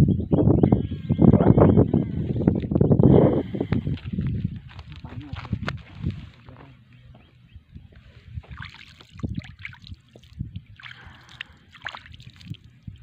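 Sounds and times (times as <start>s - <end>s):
shallow water splashing: 8.4s - 13.0s.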